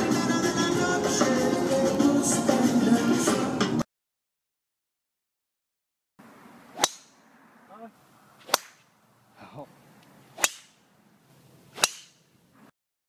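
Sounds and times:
golf driver striking ball: 0:06.7 - 0:07.3, 0:08.4 - 0:09.0, 0:10.4 - 0:10.8, 0:11.8 - 0:12.2.

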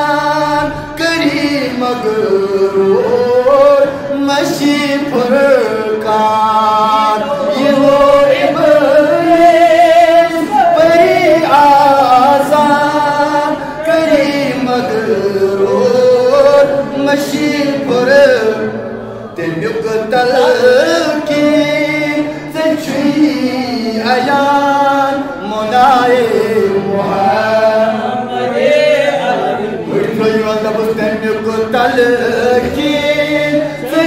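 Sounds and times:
man chanting into a microphone: 0:00.0 - 0:34.0.

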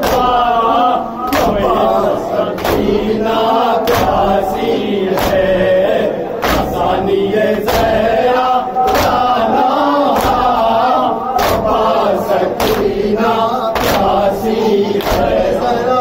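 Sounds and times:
chest-beating slaps: 0:00.0 - 0:00.6, 0:01.3 - 0:05.6, 0:06.4 - 0:06.9, 0:08.8 - 0:09.4, 0:10.1 - 0:10.7, 0:11.4 - 0:13.1, 0:13.8 - 0:15.6
men chanting in unison: 0:00.0 - 0:16.0.

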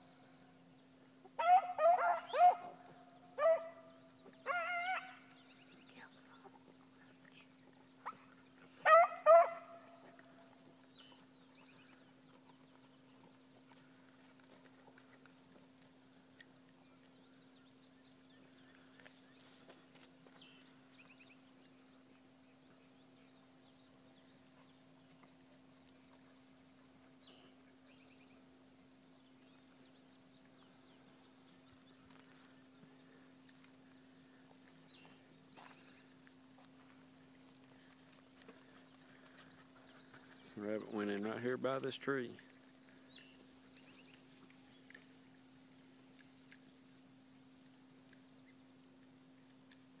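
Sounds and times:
faint chirps: 0:00.0 - 0:09.0
faint steady hum: 0:00.0 - 0:50.0
dog baying: 0:01.4 - 0:05.2, 0:08.8 - 0:10.2.

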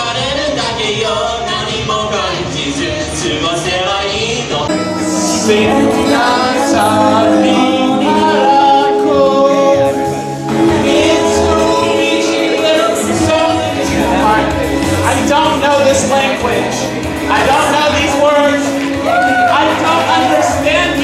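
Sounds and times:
man singing into a microphone: 0:00.0 - 0:16.5.

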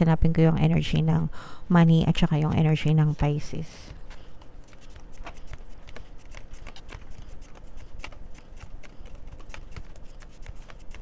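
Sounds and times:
cards being shuffled: 0:03.9 - 0:11.0.

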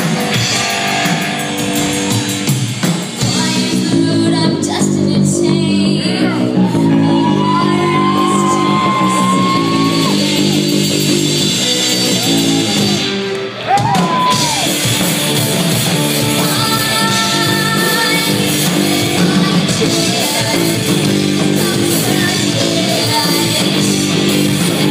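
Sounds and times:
rock band playing live: 0:00.0 - 0:24.9
woman singing long notes: 0:03.3 - 0:10.2.

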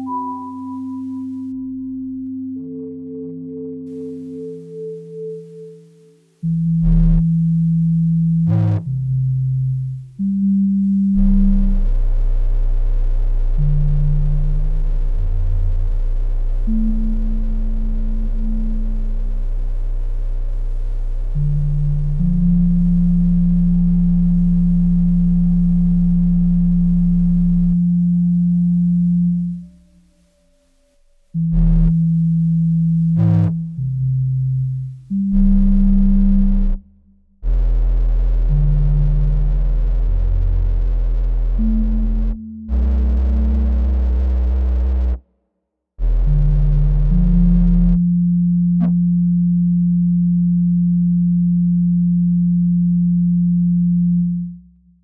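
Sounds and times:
electronic low drone note: 0:00.0 - 0:45.2, 0:46.0 - 0:55.0
low synthesized tone: 0:00.0 - 0:45.2, 0:46.0 - 0:55.0
distorted synth chord with bass: 0:03.9 - 0:45.2, 0:46.0 - 0:54.6
deep rumble: 0:10.9 - 0:30.2, 0:31.4 - 0:45.2.

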